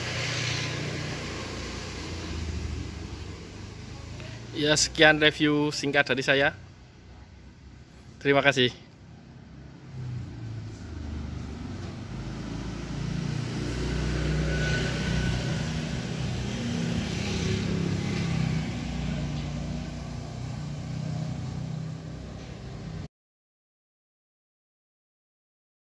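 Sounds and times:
vehicle engine rumble: 0.0s - 5.0s, 8.8s - 23.0s.

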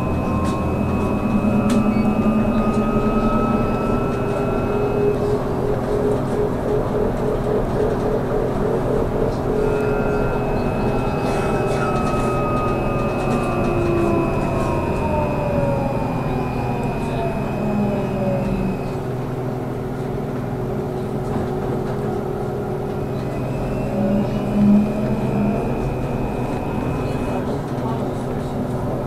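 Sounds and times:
electric motor whine: 0.0s - 5.8s, 9.6s - 19.0s, 23.2s - 27.4s
high steady tone: 0.0s - 7.0s, 9.0s - 19.2s, 23.0s - 27.6s
road and cabin noise: 0.0s - 29.0s.

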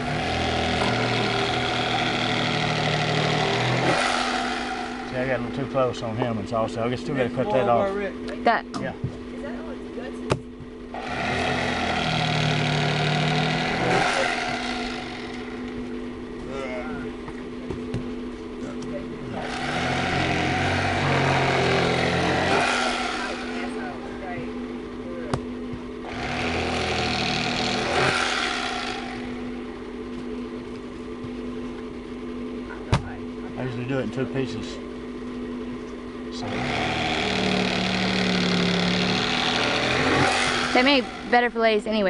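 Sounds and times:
electric fillet knife motor: 0.0s - 5.5s, 11.0s - 15.8s, 19.4s - 23.8s, 26.1s - 29.6s, 36.4s - 41.4s.

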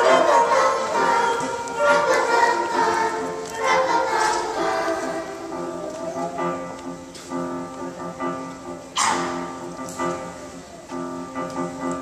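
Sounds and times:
children's choir singing: 0.0s - 6.9s
instrumental accompaniment: 0.0s - 12.0s.

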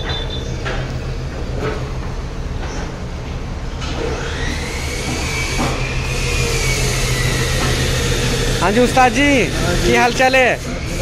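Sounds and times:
machinery humming: 0.0s - 11.0s
high whine: 3.8s - 11.0s.

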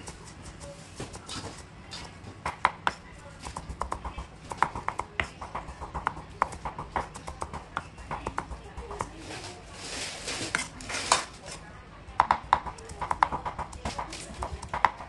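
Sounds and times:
knife chopping on wooden board: 1.0s - 9.1s, 12.2s - 15.0s.

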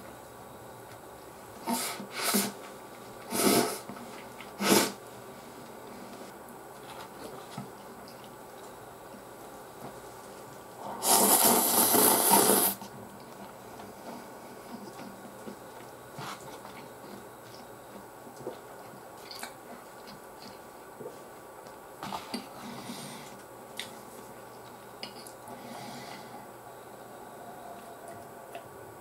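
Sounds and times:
person slurping noodles: 10.8s - 12.8s.

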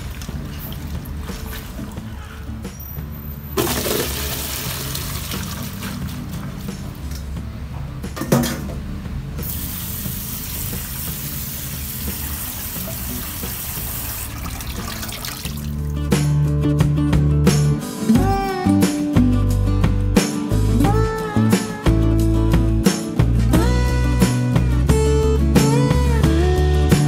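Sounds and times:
water splashing into steel sink: 3.6s - 6.6s, 10.4s - 15.9s.

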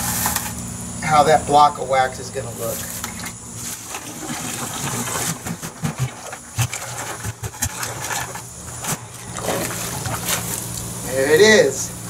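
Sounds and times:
steady low hum: 0.0s - 12.0s
plastic bucket knocks and thumps: 3.0s - 10.5s.

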